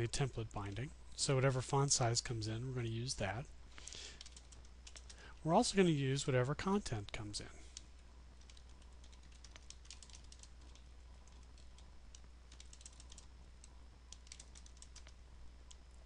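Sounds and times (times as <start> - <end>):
faint low hum: 0.0 - 16.0
keyboard typing: 4.2 - 5.2, 8.4 - 15.8.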